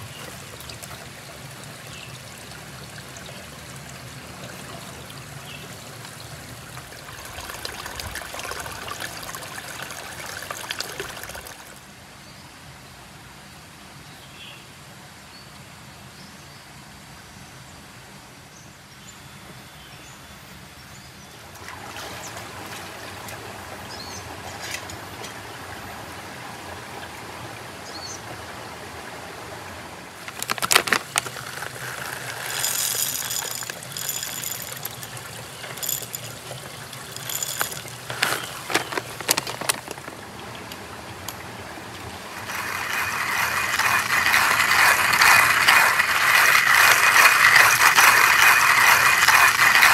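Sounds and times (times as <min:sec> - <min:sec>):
water trickling over rocks: 0:00.0 - 0:11.9, 0:29.6 - 0:49.9
gear clicking and knocking: 0:30.3 - 0:40.2, 0:42.4 - 0:49.9
loud rasping noise: 0:42.4 - 0:49.9.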